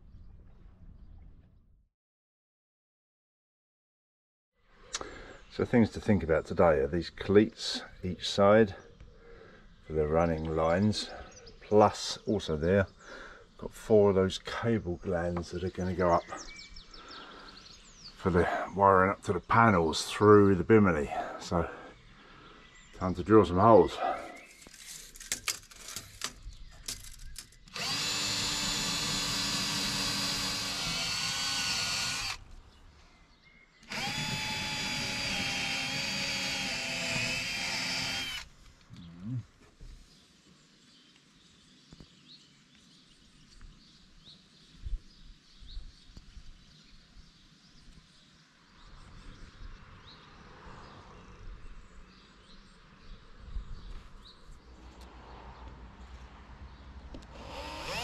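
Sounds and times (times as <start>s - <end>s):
cordless drill boring: 27.0s - 32.4s, 33.8s - 38.5s, 57.2s - 58.0s.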